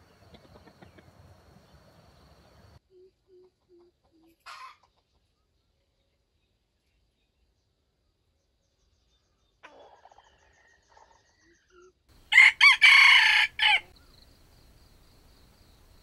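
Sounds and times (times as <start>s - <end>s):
rooster crowing: 12.2s - 14.0s.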